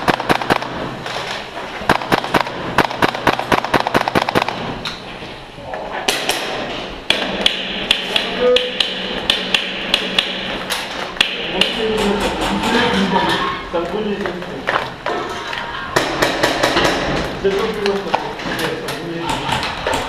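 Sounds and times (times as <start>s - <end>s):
rapid airsoft gun shots: 0.0s - 4.8s, 6.1s - 12.1s.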